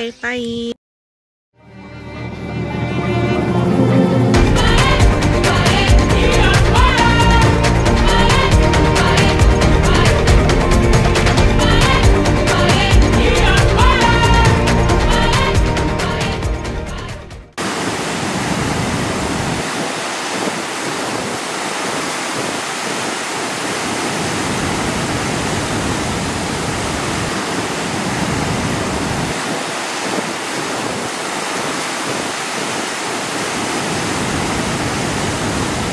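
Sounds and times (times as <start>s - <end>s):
music: 1.6s - 17.6s
waterfall roaring: 17.6s - 35.9s.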